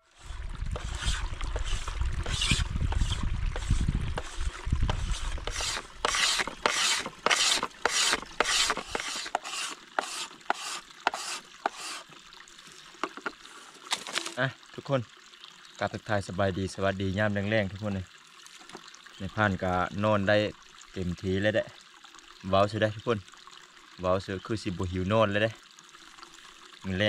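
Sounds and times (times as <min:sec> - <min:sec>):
blade scraping bamboo: 0:00.0 - 0:12.1.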